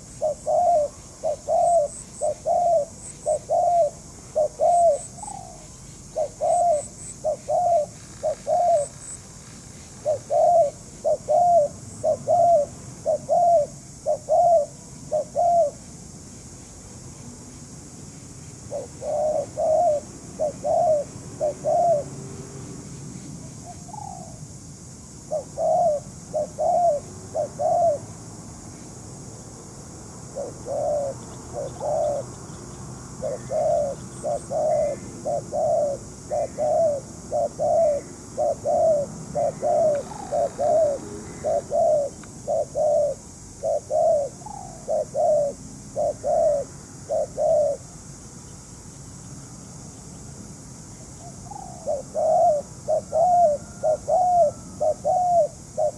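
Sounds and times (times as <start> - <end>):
doves cooing: 0.0 - 9.2, 10.0 - 15.8, 18.7 - 22.3, 25.3 - 28.1, 30.3 - 32.4, 33.0 - 47.9, 51.2 - 55.9.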